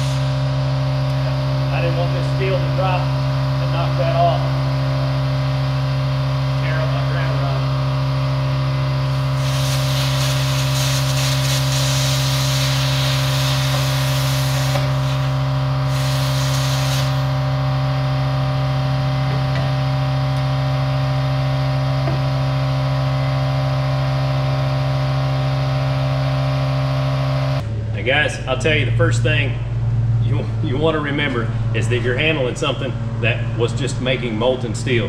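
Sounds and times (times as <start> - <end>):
plasma cutter arc hissing: 0.0 - 0.6, 9.1 - 17.5
steady low hum: 0.0 - 35.0.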